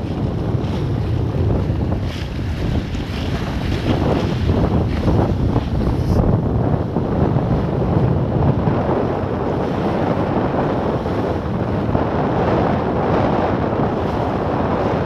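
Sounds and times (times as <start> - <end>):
water splashing along boat hull: 0.0 - 15.0
wind buffeting microphone: 0.0 - 15.0.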